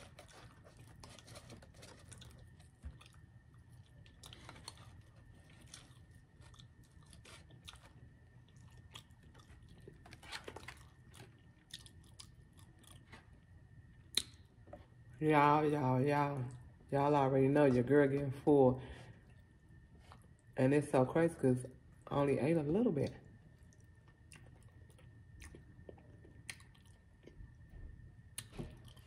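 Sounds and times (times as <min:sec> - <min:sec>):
person chewing crunchy food: 0:00.0 - 0:15.1, 0:19.2 - 0:20.6, 0:23.3 - 0:29.0.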